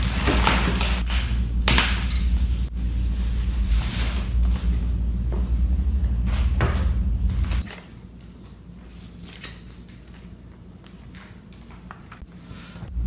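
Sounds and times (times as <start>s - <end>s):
packaging crinkling: 0.0s - 1.2s
plastic mailer tearing: 0.0s - 1.9s
steady low hum: 0.0s - 13.0s.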